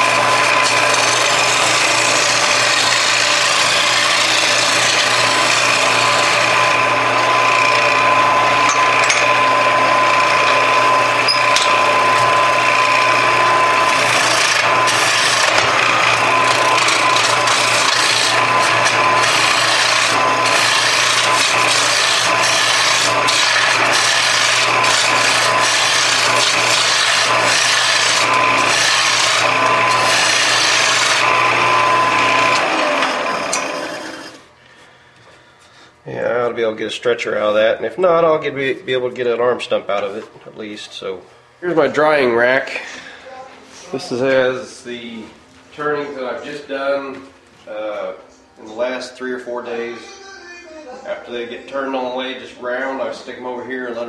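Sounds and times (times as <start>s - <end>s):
turning tool scraping wood: 0.0s - 34.5s
lathe humming: 0.0s - 34.6s, 43.9s - 54.0s.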